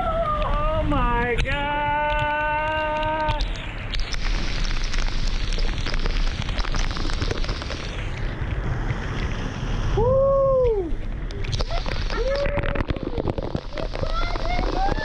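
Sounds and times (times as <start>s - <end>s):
person whooping: 0.0s - 0.9s, 10.0s - 11.0s, 12.1s - 13.3s
waterfall plunging water: 0.1s - 15.0s
spray pelting camera: 3.3s - 8.2s, 11.4s - 15.0s.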